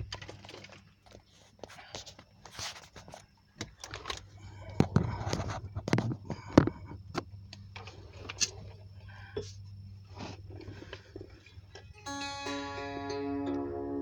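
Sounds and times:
handling clicks and rustles: 0.0s - 12.0s
steady low hum: 0.0s - 14.0s.

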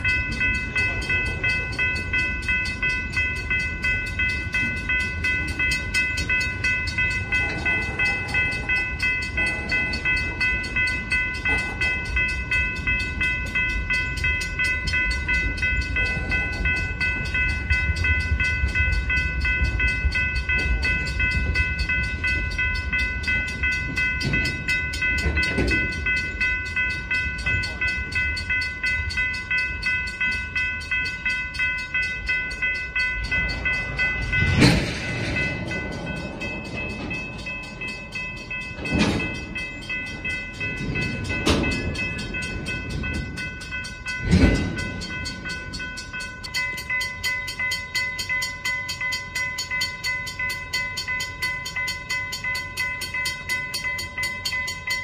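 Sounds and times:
crossing bell ringing: 0.0s - 55.0s
loud clanks of train couplers: 0.0s - 55.0s
train cars rumbling past: 0.0s - 55.0s.

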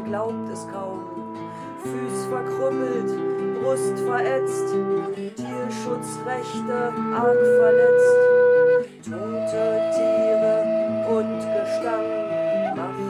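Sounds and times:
strummed acoustic guitar: 0.0s - 13.0s
low whistle long notes: 5.9s - 13.0s.

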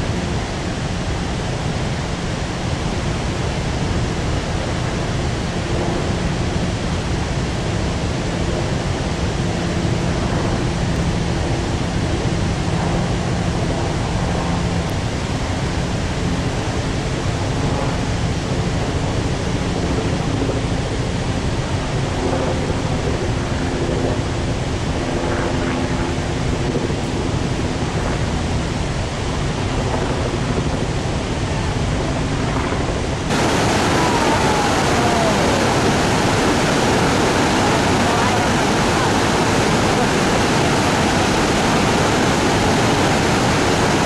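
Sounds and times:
white water rushing over rocks: 0.0s - 20.3s, 33.1s - 44.0s
cascading waterfall: 0.0s - 20.4s, 33.2s - 44.0s.

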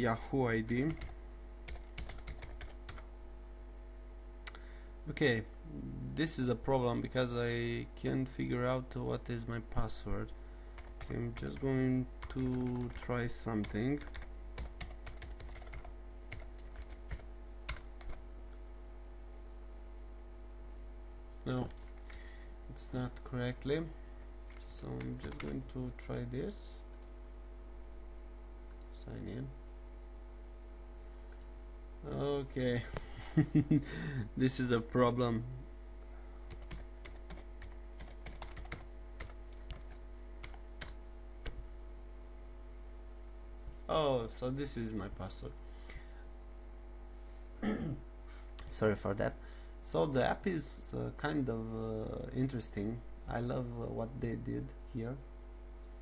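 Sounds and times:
low electrical hum: 0.0s - 56.0s
keyboard typing clicks: 0.9s - 3.0s, 10.8s - 18.2s, 36.5s - 41.6s.

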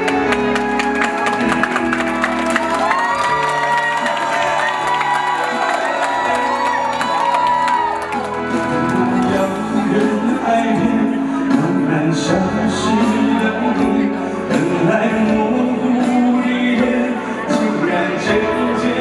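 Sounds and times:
man singing into microphone: 9.1s - 19.0s.

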